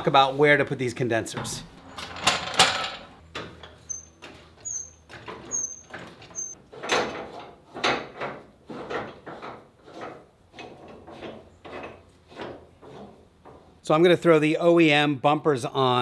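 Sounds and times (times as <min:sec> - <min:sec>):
high jack squeaks: 0:01.8 - 0:06.6.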